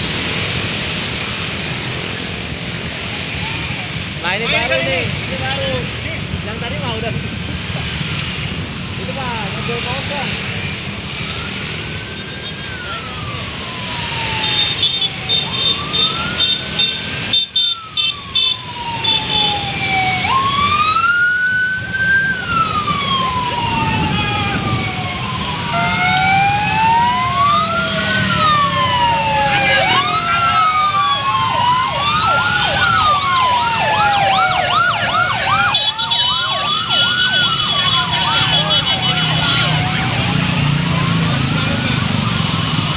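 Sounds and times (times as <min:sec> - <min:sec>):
electronic sirens wailing: 0:09.3 - 0:42.9
siren fast yelp: 0:09.4 - 0:42.9.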